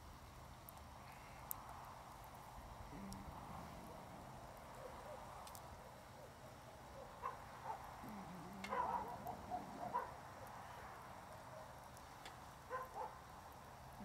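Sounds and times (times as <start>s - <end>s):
faint clicks: 8.2s - 9.4s.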